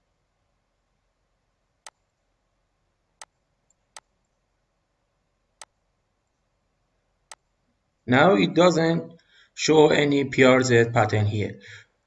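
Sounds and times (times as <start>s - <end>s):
computer mouse clicks: 1.8s - 2.1s, 3.2s - 4.4s, 5.6s - 6.4s, 7.3s - 7.5s.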